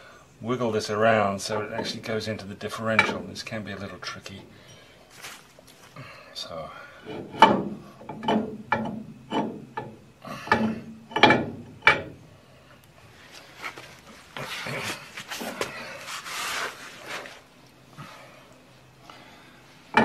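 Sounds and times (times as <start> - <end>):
metal shaft rubbing and scraping: 7.0 - 12.1
sharp metal knocks: 7.3 - 12.2.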